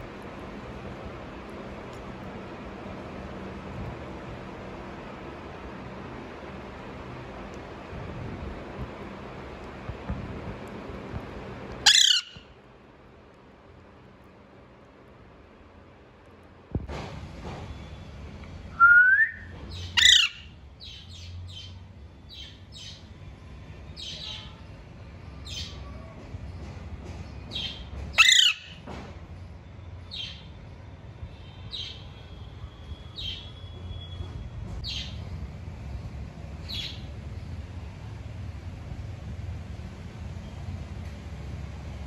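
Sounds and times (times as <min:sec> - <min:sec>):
parakeet harsh squawks: 0:11.8 - 0:12.6, 0:19.8 - 0:21.0, 0:27.7 - 0:28.8
parakeet high chirps: 0:11.8 - 0:12.6, 0:19.7 - 0:21.7, 0:27.5 - 0:28.8, 0:31.7 - 0:32.1, 0:33.2 - 0:34.1
parakeet whistle: 0:11.9 - 0:12.5, 0:18.8 - 0:21.0, 0:27.6 - 0:28.8.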